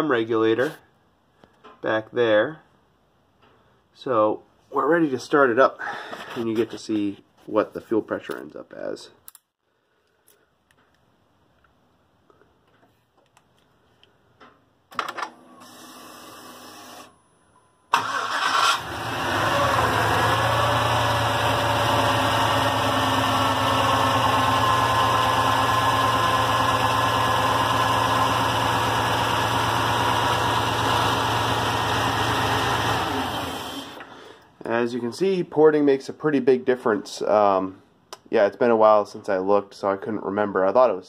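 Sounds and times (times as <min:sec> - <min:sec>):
engine cranking and idling: 0:17.9 - 0:34.1.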